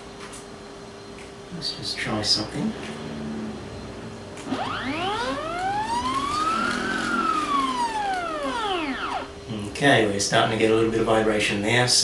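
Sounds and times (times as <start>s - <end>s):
stepper motor whine: 2.9s - 9.5s.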